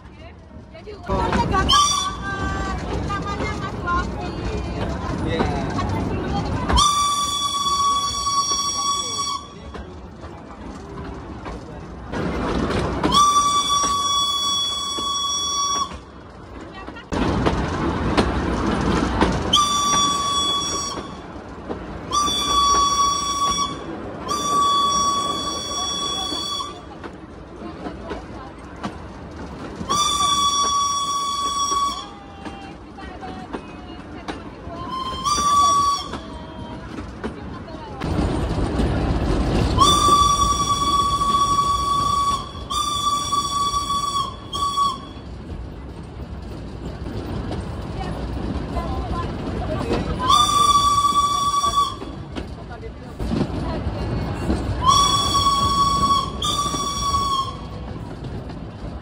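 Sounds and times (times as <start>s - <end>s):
train rumbling on rails: 0.0s - 59.0s
steam locomotive whistle blasts: 6.7s - 9.7s, 13.0s - 16.0s, 19.5s - 21.2s, 22.1s - 26.8s, 29.9s - 32.3s, 34.9s - 36.4s, 39.8s - 45.3s, 50.2s - 52.2s, 54.8s - 57.9s.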